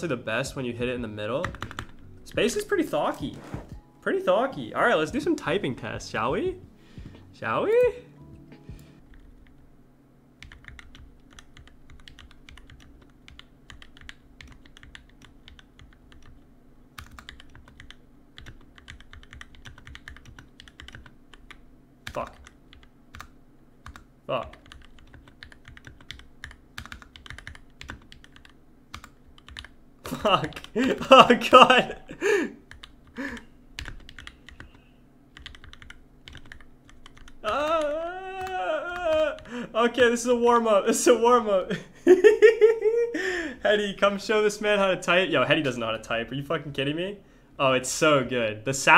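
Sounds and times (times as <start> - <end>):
fast typing on mechanical keyboard: 1.4 - 2.0, 10.4 - 16.4, 17.0 - 30.8, 32.7 - 39.5
man's drawn-out vocal sound: 37.4 - 41.6.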